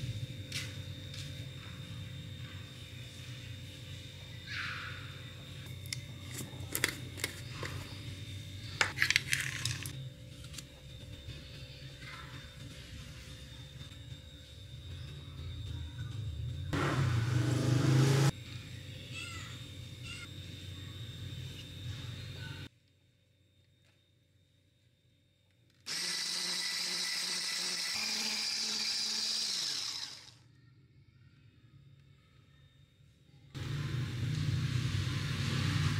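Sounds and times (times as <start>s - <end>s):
electric whisk whining: 25.9s - 30.4s.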